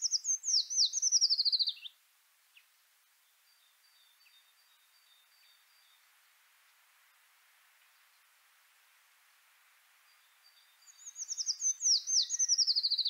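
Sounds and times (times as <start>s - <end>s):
songbird trill: 0.0s - 6.8s, 9.9s - 13.0s
faint bird chirp: 0.0s - 6.9s, 7.7s - 8.6s, 9.8s - 13.0s.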